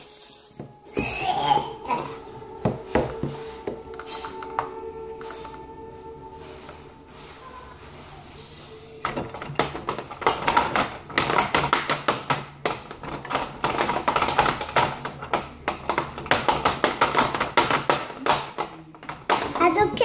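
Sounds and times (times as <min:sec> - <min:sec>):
plastic toy parts clattering: 0:09.0 - 0:20.0.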